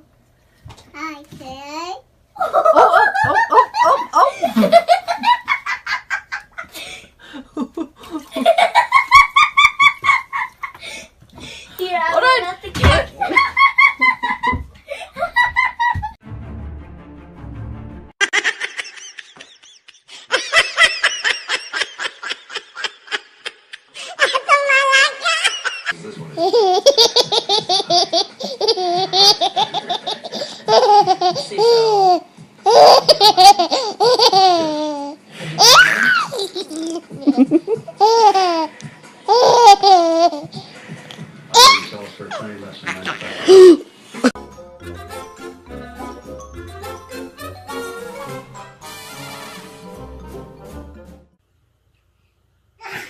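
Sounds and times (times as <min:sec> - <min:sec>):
baby laughing: 0:18.2 - 0:40.6, 0:41.5 - 0:43.9.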